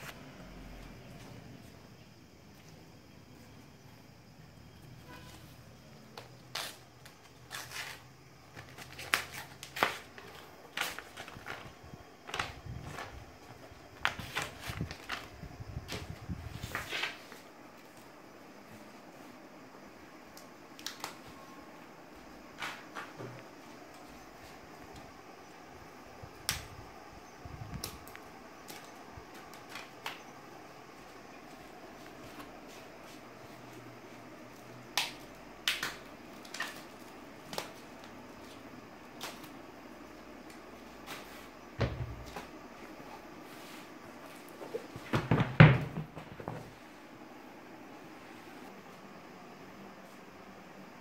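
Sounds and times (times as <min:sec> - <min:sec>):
paper label crinkling and tearing: 0:06.3 - 0:11.7.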